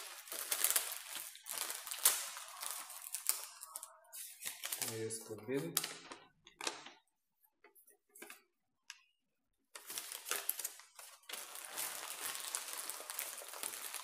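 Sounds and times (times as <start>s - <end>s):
plastic mailer bag crinkling: 0.0s - 7.0s, 9.8s - 14.0s
faint paper rustles: 0.0s - 8.5s, 9.7s - 14.0s.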